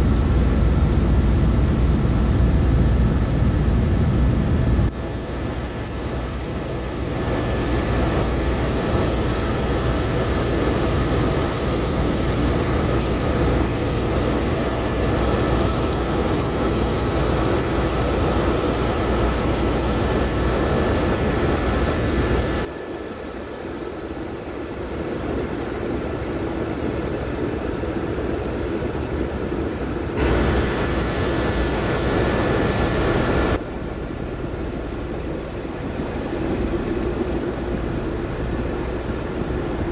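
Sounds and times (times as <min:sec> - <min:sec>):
low rotor drone: 0:00.0 - 0:28.8, 0:30.1 - 0:39.9
helicopter engine whine: 0:04.9 - 0:28.3, 0:30.2 - 0:33.6.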